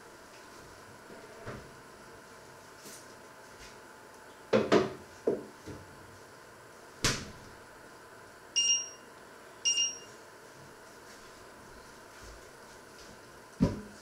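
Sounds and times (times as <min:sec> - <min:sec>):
short electronic beeps: 0:08.6 - 0:10.1.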